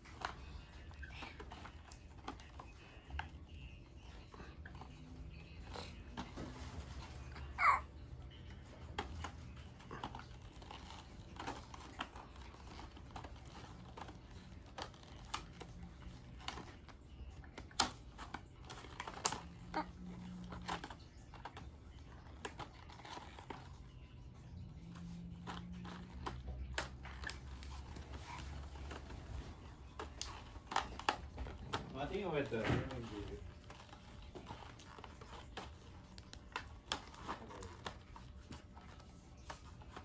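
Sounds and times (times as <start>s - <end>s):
toy packaging crinkling and tearing: 0.1s - 24.0s, 24.7s - 40.0s.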